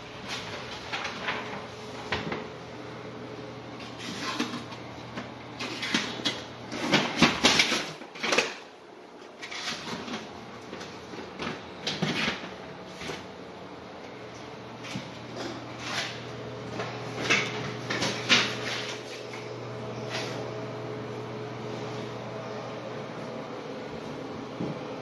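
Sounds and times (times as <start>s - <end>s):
footsteps on hardwood floor: 23.9s - 24.9s.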